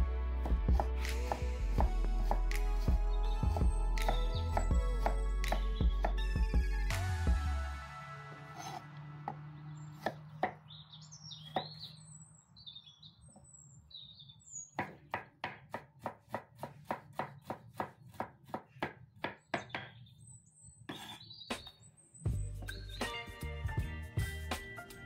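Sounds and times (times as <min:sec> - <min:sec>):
knife chopping on wooden board: 0:03.5 - 0:06.2, 0:08.6 - 0:09.4, 0:10.0 - 0:10.6, 0:14.8 - 0:20.0
birds chirping: 0:08.6 - 0:23.7.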